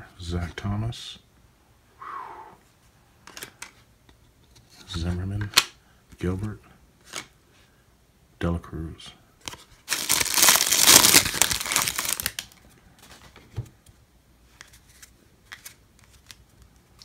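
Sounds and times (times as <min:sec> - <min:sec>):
cards being handled: 0:06.4 - 0:07.4, 0:09.4 - 0:17.0
plastic wrapper crinkling and tearing: 0:09.5 - 0:12.6.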